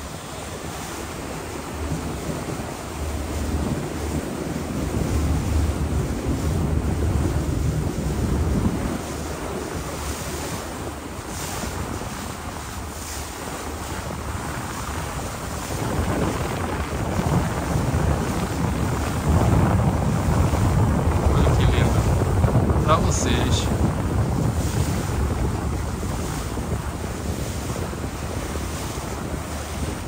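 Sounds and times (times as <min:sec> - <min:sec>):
wind rushing over microphone: 0:00.0 - 0:30.0.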